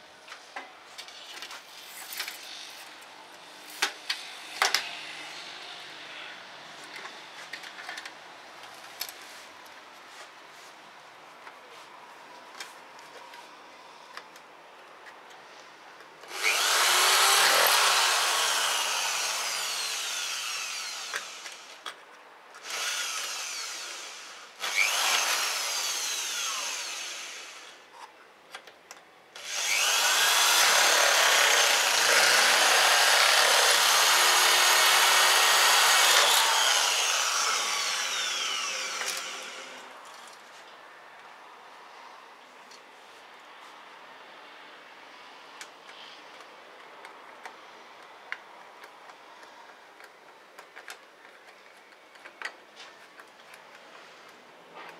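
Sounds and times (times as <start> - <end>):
power drill boring into metal: 16.3 - 21.8, 22.6 - 27.8, 29.4 - 39.8.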